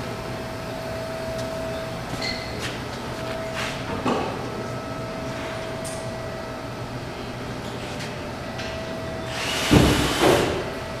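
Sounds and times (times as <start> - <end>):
workshop background hum: 0.0 - 11.0.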